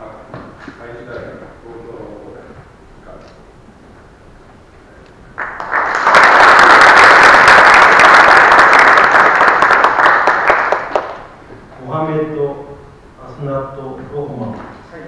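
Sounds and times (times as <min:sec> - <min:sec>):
audience applauding: 0:05.4 - 0:11.4.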